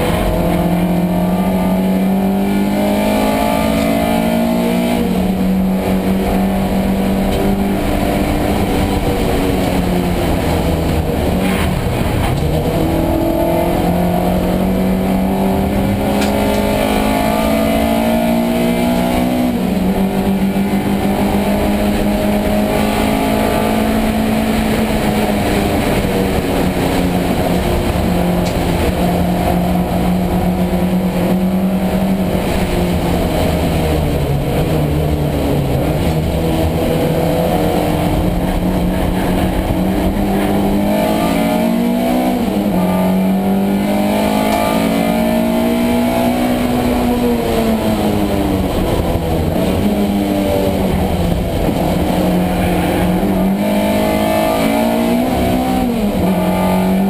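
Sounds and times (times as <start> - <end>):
race car engine running hard: 0.0 - 57.0
road noise: 0.0 - 57.0.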